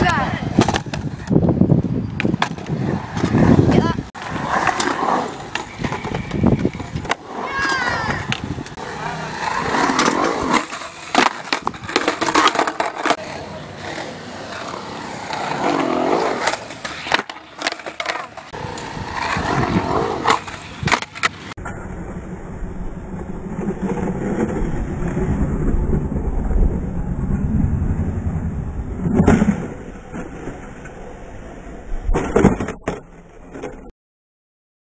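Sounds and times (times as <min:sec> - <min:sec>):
skateboard clacks and slaps: 0:00.0 - 0:01.4, 0:02.1 - 0:09.1, 0:09.7 - 0:21.5
skateboard wheels rolling on concrete: 0:00.0 - 0:33.9.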